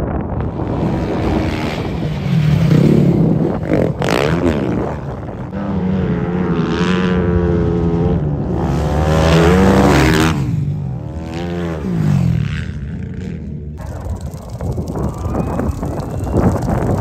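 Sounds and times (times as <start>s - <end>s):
wind on microphone: 0.0s - 5.6s, 13.8s - 17.0s
motorcycle engine running hard: 0.4s - 17.0s.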